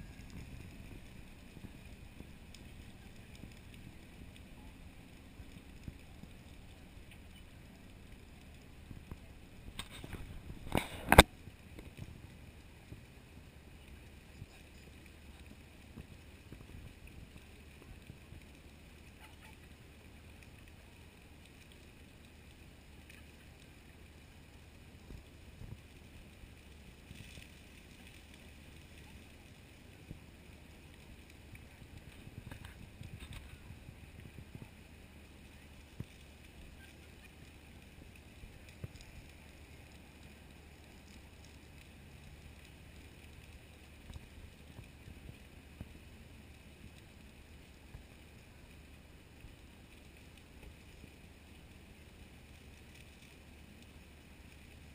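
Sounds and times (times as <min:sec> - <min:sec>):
low outdoor rumble: 0:00.0 - 0:54.9.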